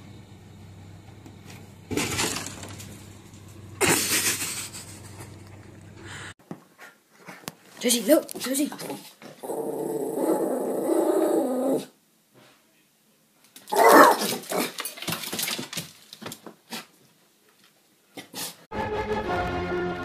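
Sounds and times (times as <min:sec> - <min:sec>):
dog growling: 0:08.9 - 0:12.0.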